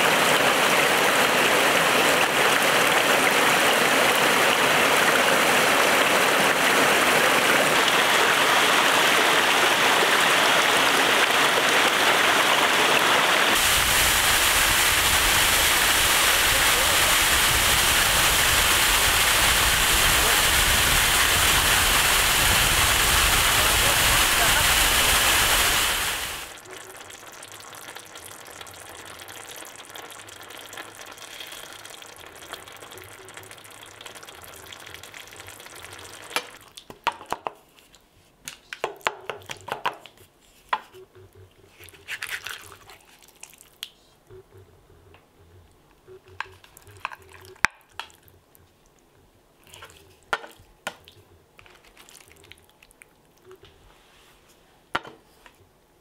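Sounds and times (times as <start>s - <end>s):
steady hiss: 7.7s - 26.7s.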